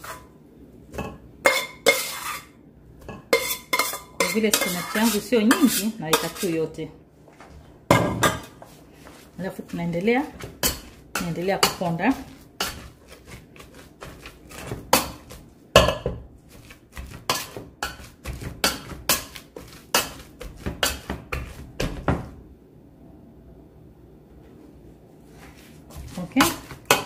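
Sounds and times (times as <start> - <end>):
potato masher clanking on pot: 16.9 - 22.2.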